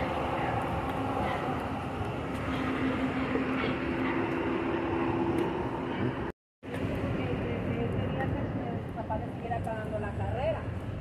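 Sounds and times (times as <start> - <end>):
city street traffic rumble: 0.0 - 11.0.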